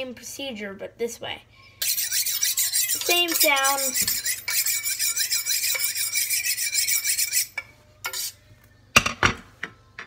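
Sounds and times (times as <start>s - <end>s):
knife scraping on sharpening steel: 1.8s - 8.4s.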